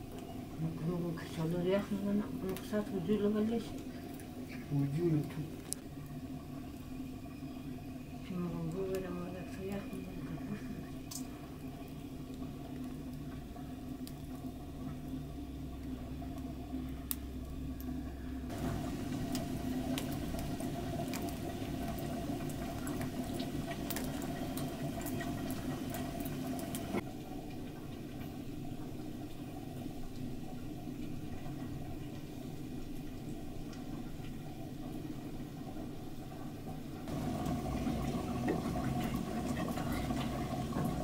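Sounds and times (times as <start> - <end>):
pot simmering and bubbling: 0.0 - 41.0
wood fire crackling and popping: 1.2 - 4.4, 11.0 - 15.1, 15.8 - 17.9, 18.5 - 27.1, 37.0 - 41.0.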